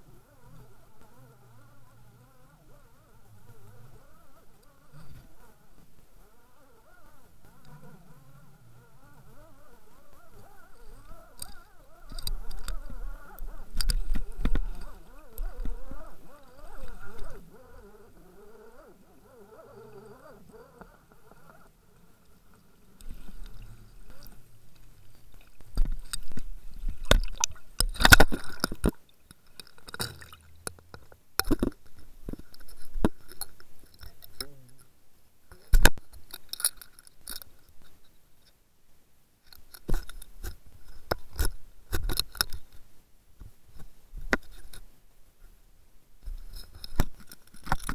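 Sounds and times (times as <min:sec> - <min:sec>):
muffled underwater knocks and scrapes: 0:10.2 - 0:17.9, 0:22.6 - 0:34.6, 0:39.6 - 0:42.8, 0:43.4 - 0:44.9, 0:46.2 - 0:47.9.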